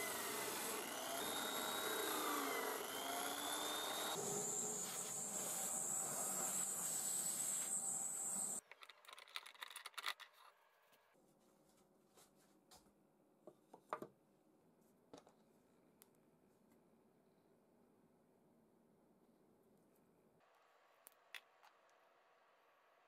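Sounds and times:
drill press motor whining: 0:00.0 - 0:08.6.

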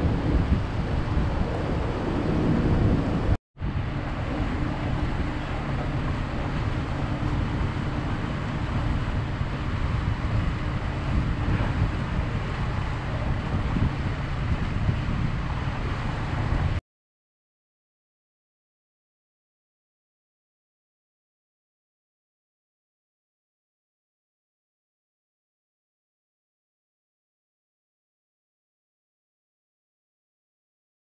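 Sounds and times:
boat engine droning: 0:00.0 - 0:16.8
wind buffeting microphone: 0:00.0 - 0:16.8.

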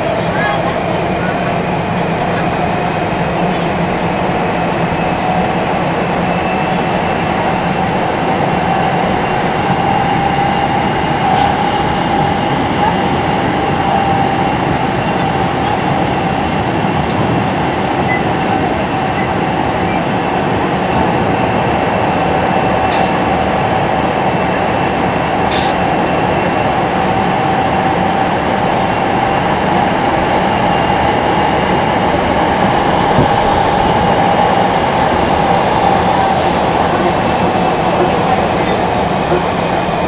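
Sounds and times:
steady train whine: 0:00.0 - 0:40.0
train wheels rumbling on rail: 0:00.0 - 0:40.0.

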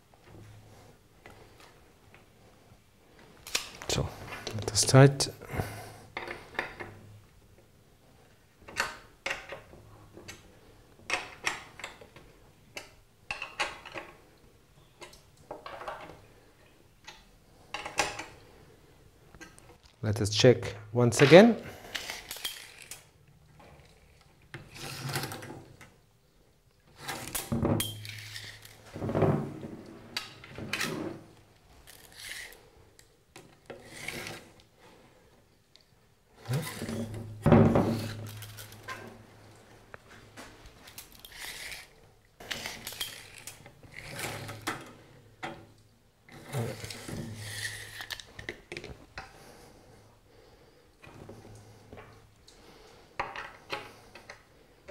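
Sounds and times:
tape measure rubbing and clicking: 0:31.8 - 0:32.7, 0:40.8 - 0:44.6, 0:46.4 - 0:48.4.

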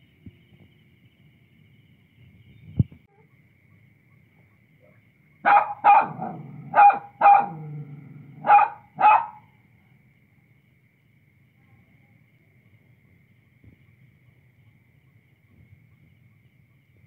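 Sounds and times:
small dog barking: 0:04.8 - 0:09.5.

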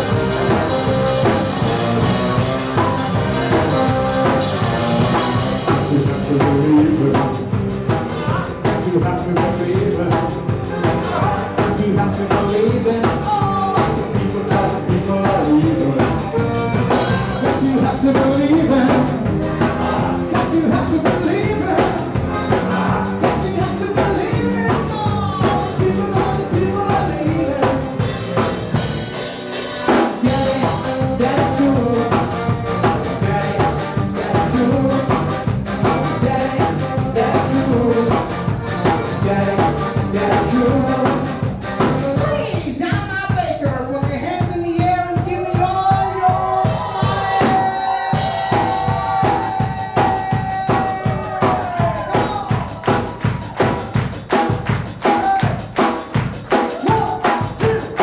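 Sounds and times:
accordion: 0:00.0 - 0:43.1
bass: 0:00.0 - 0:58.0
drum kit: 0:00.0 - 0:58.0
person singing: 0:05.5 - 0:07.4, 0:08.1 - 0:16.4, 0:17.0 - 0:28.0, 0:29.7 - 0:42.9, 0:44.8 - 0:52.8, 0:56.7 - 0:58.0.

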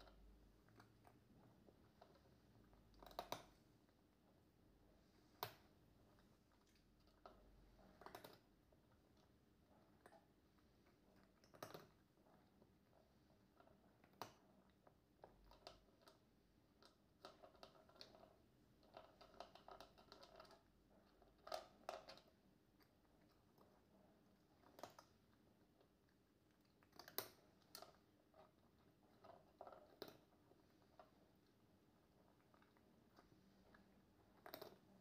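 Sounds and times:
cat crunching food: 0:01.8 - 0:03.7, 0:05.1 - 0:08.5, 0:11.1 - 0:13.0, 0:24.5 - 0:25.6, 0:26.5 - 0:35.0.

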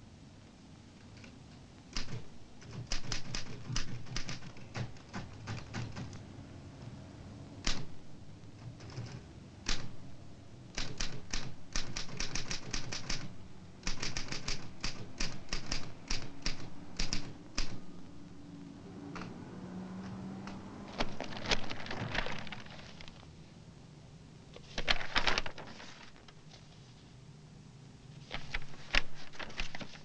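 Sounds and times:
typewriter keys clacking: 0:01.9 - 0:06.2, 0:07.6 - 0:08.0, 0:08.6 - 0:10.0, 0:10.7 - 0:17.8, 0:28.3 - 0:30.0.

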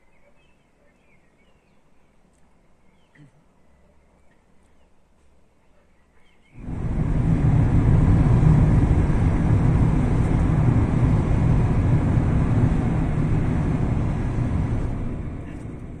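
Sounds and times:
car cabin road rumble: 0:06.6 - 0:16.0.

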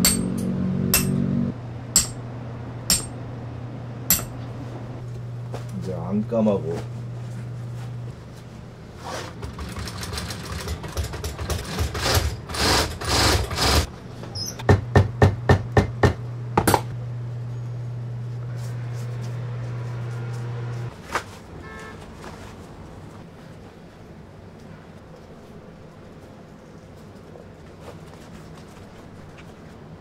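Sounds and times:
machine motor humming: 0:16.3 - 0:20.9.

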